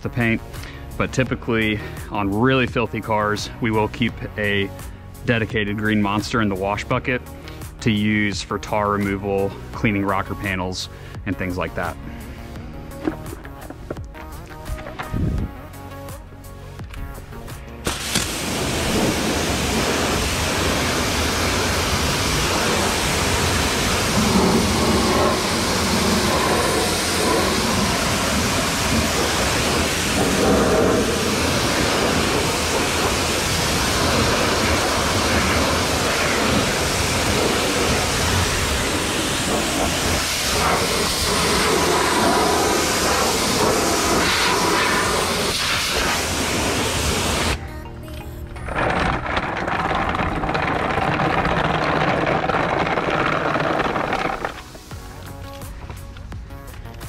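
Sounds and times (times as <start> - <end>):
pressure washer spraying water: 17.8 - 47.6, 48.8 - 55.1.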